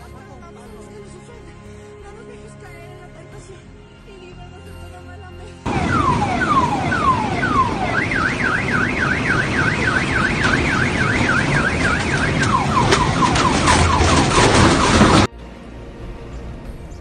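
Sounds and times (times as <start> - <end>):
car alarm warbling: 5.7 - 15.3.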